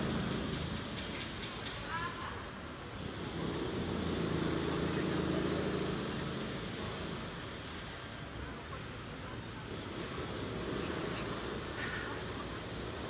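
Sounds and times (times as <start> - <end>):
steady background hiss: 0.0 - 13.0.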